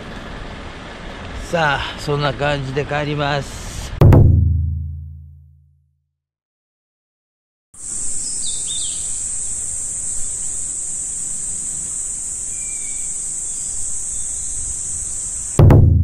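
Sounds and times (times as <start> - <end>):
high-pitched insect buzz: 7.8 - 15.6
bird chirps: 8.2 - 9.4.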